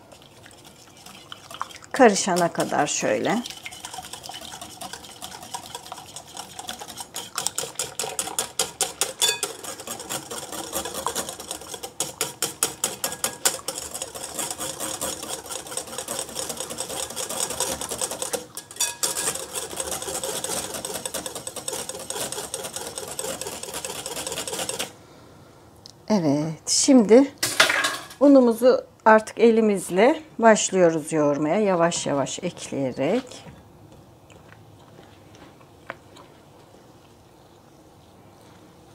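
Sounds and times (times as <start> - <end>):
wire whisk beating in glass bowl: 0.6 - 24.9.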